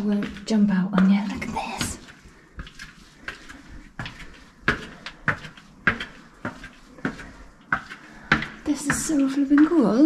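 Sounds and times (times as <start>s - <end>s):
footsteps on hard floor: 0.0s - 10.0s.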